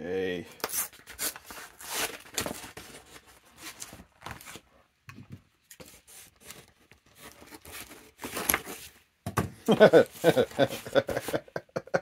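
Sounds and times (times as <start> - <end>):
cardboard mailer tearing: 0.6 - 4.6
scissors cutting cardboard: 5.7 - 9.0, 9.8 - 11.4.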